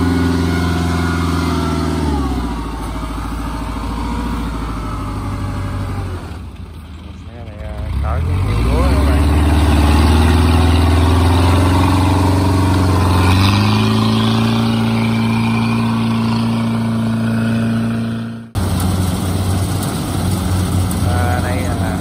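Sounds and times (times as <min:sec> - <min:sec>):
different engine running: 0:00.0 - 0:22.0
tractor engine running: 0:00.0 - 0:22.0.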